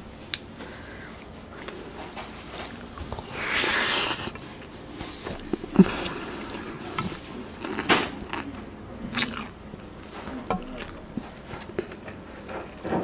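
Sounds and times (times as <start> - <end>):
chewing with wet mouth clicks: 1.1 - 9.6, 10.5 - 12.2
loud hissing burst: 3.3 - 4.3.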